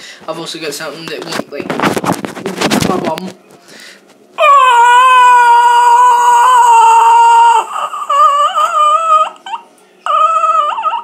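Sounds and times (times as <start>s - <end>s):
boy wailing and crying: 4.4s - 11.0s.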